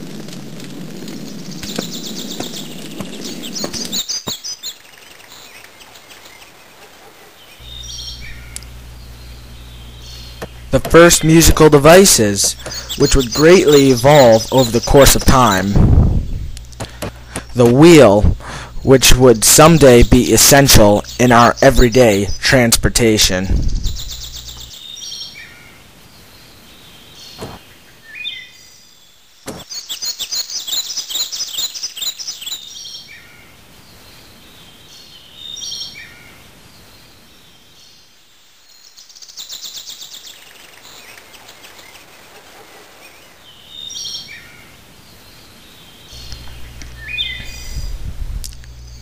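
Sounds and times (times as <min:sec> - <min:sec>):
birds chirping and singing: 0:00.9 - 0:49.0
rapid bird trill: 0:01.1 - 0:25.4, 0:29.6 - 0:33.1, 0:38.8 - 0:44.7, 0:46.0 - 0:48.0
sharp clicks: 0:08.5 - 0:08.7
low rumble: 0:15.7 - 0:18.9.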